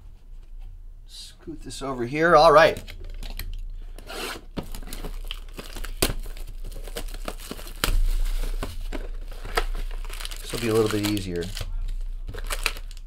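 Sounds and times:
plastic shrink wrap tearing: 4.6 - 13.0.

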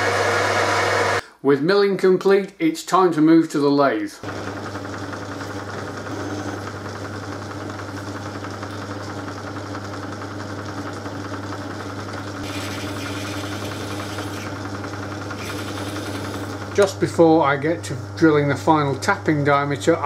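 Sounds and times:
metal lathe humming: 0.0 - 1.2, 4.2 - 19.5
drill boring into steel: 4.2 - 6.8, 12.4 - 14.7, 15.3 - 16.9.

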